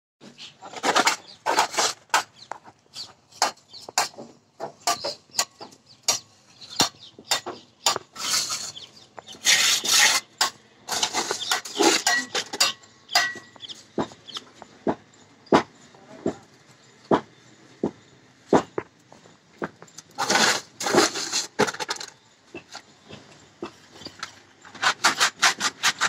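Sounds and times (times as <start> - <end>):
trowel scraping wet mortar: 0.6 - 4.2, 4.8 - 13.4, 20.1 - 22.7, 24.6 - 26.0.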